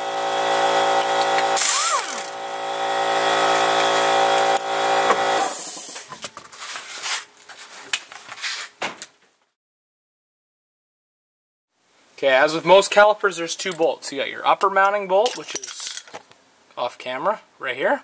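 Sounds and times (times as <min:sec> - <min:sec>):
air impact wrench whirring: 0:00.0 - 0:05.9.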